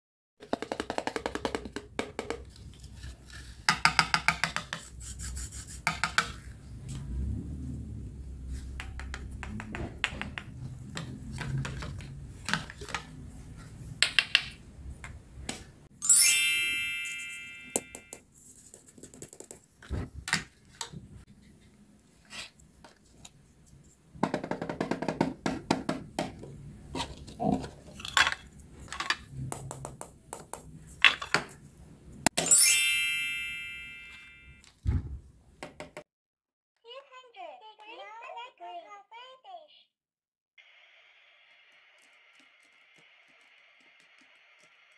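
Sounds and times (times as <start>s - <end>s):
plastic toy pieces clicking and tapping: 0.4s - 2.5s, 3.7s - 4.9s
ringing ping: 16.0s - 18.2s, 32.4s - 34.6s.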